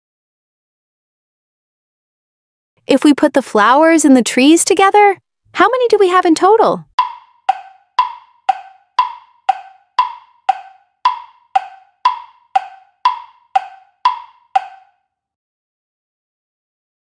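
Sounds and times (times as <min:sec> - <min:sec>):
clock ticking: 0:06.9 - 0:14.9.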